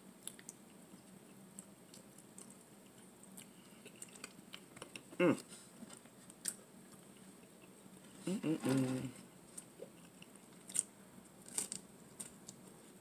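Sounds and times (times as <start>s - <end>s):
wet chewing and lip smacks: 0.2s - 5.1s
person's short vocal sound: 5.2s - 5.5s, 8.2s - 9.2s.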